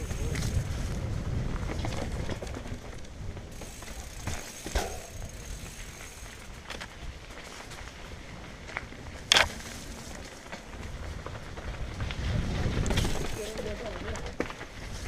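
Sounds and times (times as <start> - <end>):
wind rumble on microphone: 0.0 - 4.1, 10.0 - 15.0
bike clicking and rattling: 0.0 - 15.0
tyres crunching over dirt and stones: 0.0 - 15.0.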